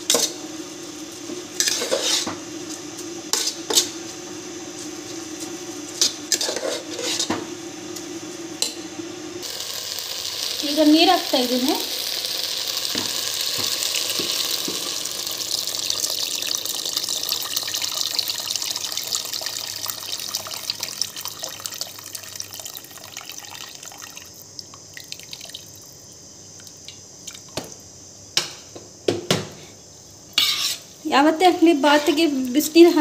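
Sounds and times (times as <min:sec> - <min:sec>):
water pouring into a pot: 0:09.4 - 0:26.0.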